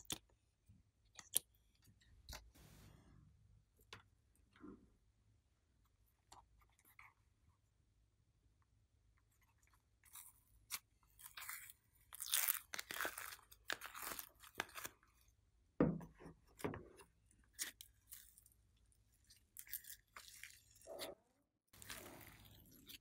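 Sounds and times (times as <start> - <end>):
slime squishing and crackling: 10.0 - 15.2, 17.5 - 23.0.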